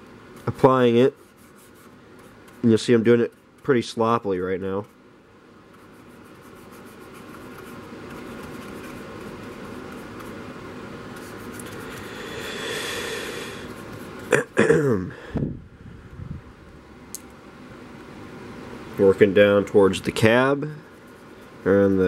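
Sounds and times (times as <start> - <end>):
paintbrush scrubbing on plastic: 0.4 - 3.9, 5.7 - 10.4, 11.1 - 12.2, 13.6 - 14.3.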